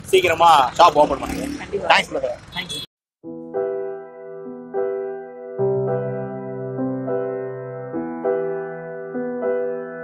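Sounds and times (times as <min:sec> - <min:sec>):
slow piano chords: 0:03.3 - 0:10.0.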